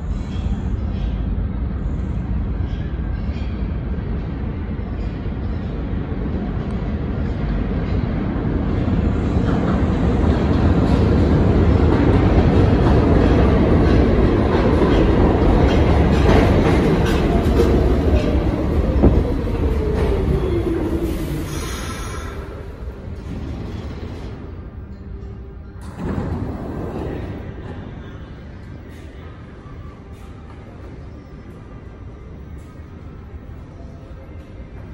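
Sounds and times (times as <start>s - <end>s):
subway train pulling in: 0.0s - 34.9s
train brake whine: 21.2s - 22.7s.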